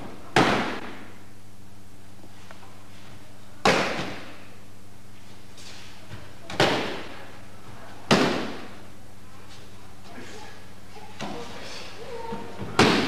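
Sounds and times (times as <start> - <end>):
body slapping onto mat: 0.0 - 1.1.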